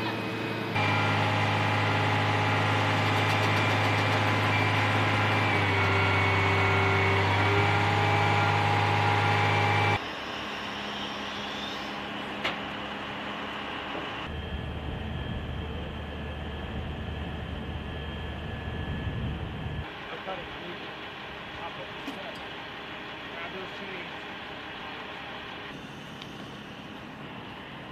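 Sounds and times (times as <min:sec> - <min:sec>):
diesel engine running: 0:00.0 - 0:27.9
high whines: 0:00.1 - 0:21.6.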